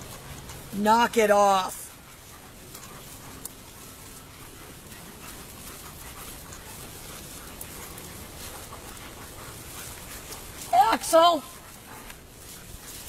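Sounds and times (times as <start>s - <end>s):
dogs panting: 0.0s - 13.0s
faint rustling and ticks: 0.0s - 13.0s.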